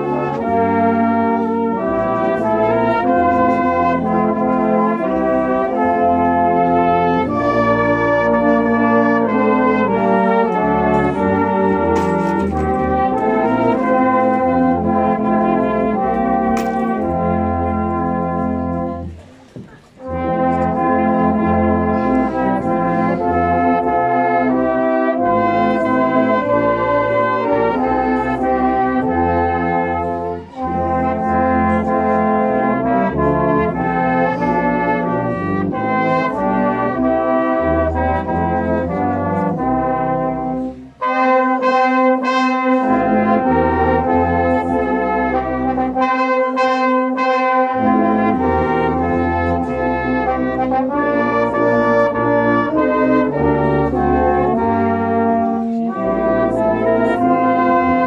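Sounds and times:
brass band playing a carol: 0.0 - 58.0.

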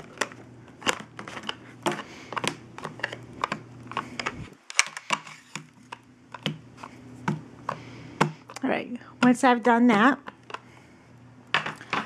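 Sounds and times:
plastic folder clicking and tapping: 0.0 - 6.6.

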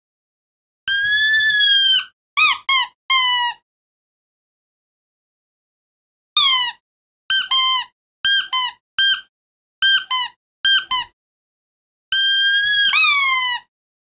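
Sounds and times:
squeaky dog toy squeaks: 0.9 - 3.6, 6.4 - 11.1, 12.1 - 13.7.

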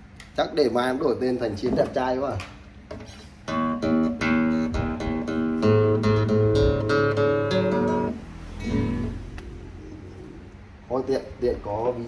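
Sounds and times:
classical guitar plucked: 3.4 - 9.2.

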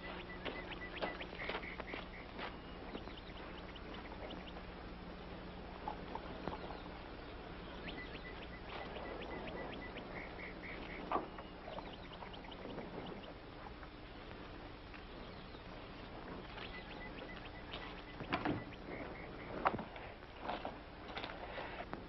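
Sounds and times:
crackling clicks: 0.0 - 4.7, 7.8 - 20.1
rapid high-pitched chirps: 0.0 - 4.8, 6.5 - 13.4, 15.2 - 19.7
tv soundtrack hum and hiss: 0.0 - 22.0.

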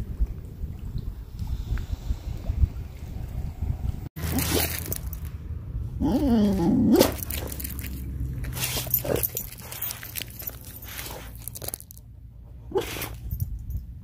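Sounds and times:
dog whining: 6.0 - 7.5.

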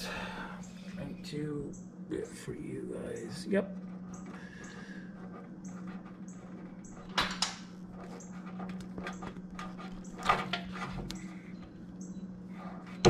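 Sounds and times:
steady low hum: 0.0 - 13.0
small parts and tools clattering: 6.9 - 11.8.

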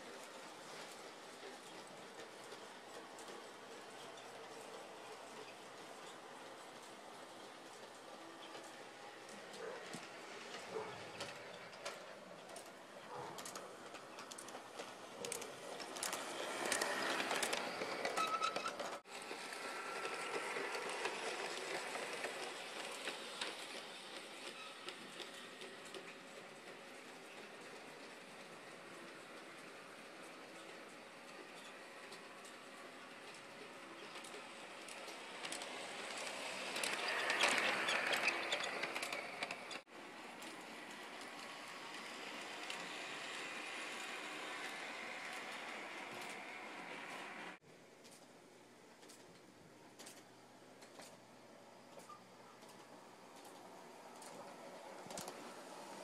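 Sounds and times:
model train wheels rattling: 0.0 - 48.2.

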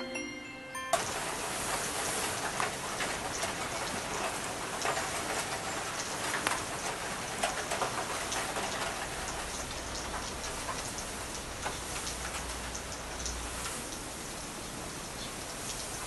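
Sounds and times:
tinkling music: 0.0 - 1.8
steady rain: 1.0 - 16.0.

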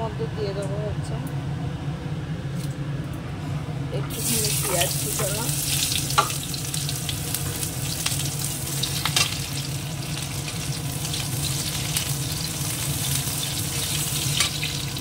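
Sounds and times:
onion sizzling in hot oil: 4.1 - 15.0.

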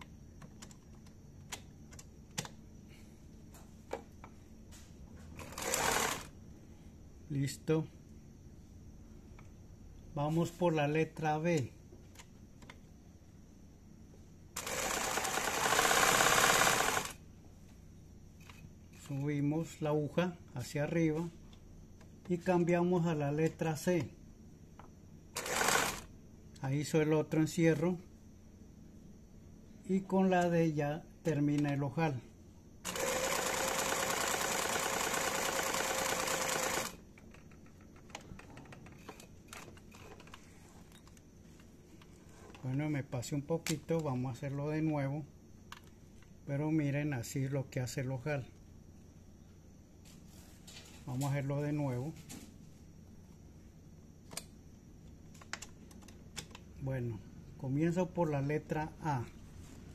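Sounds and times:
sewing machine stitching: 5.4 - 6.3, 14.6 - 17.2, 25.4 - 26.1, 32.9 - 37.0
faint clicks and handling: 37.1 - 42.8, 54.3 - 56.7.

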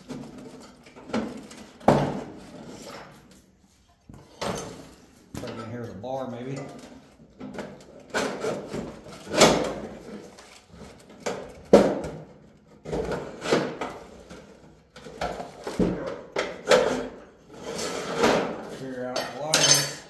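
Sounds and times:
pry bar scraping metal: 19.4 - 20.0.

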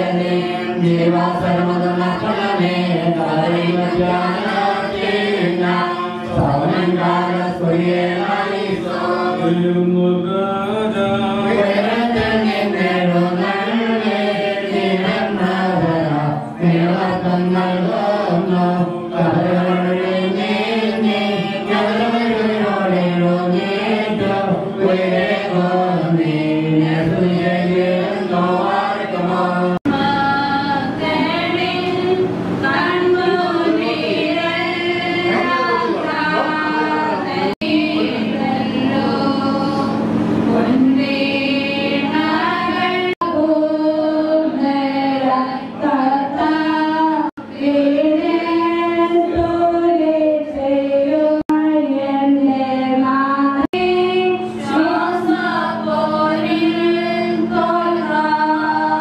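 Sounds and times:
man singing hymn through microphone: 0.0 - 14.1, 14.9 - 30.2
voices singing along: 0.0 - 59.0.

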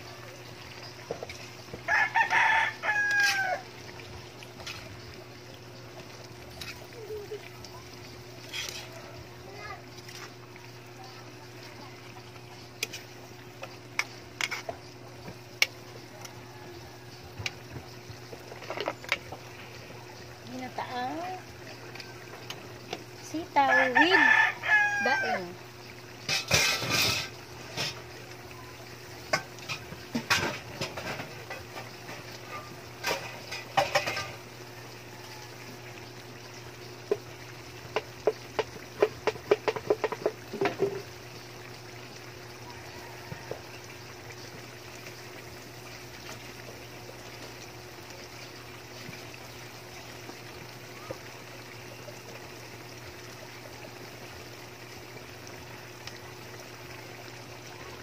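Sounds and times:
food simmering in a wok: 0.0 - 58.0.

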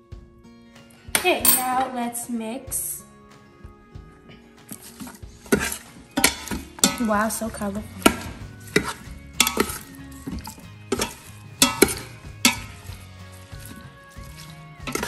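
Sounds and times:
spoon clinking against metal pot: 5.5 - 15.0.

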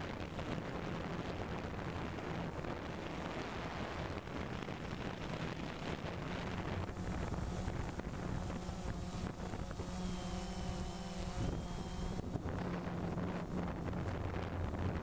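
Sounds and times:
wind buffeting microphone: 0.0 - 15.0
drone motors humming: 5.8 - 15.0.

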